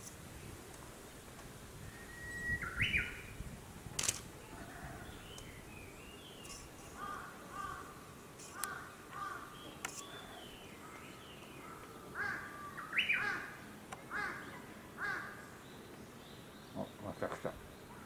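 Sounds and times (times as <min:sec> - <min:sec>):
sharp clicks: 0:04.0 - 0:04.3, 0:09.8 - 0:10.1
crow-like caws: 0:07.0 - 0:08.0, 0:08.6 - 0:09.5, 0:12.1 - 0:14.4, 0:15.0 - 0:15.4.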